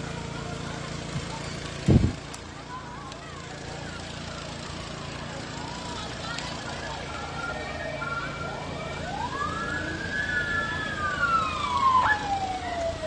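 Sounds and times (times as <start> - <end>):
emergency vehicle siren wailing: 3.7 - 13.0.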